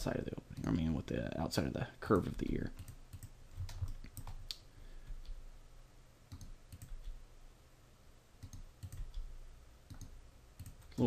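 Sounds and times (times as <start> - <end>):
keyboard and mouse clicks: 2.1 - 5.4, 6.3 - 7.2, 8.4 - 9.3, 9.9 - 11.0.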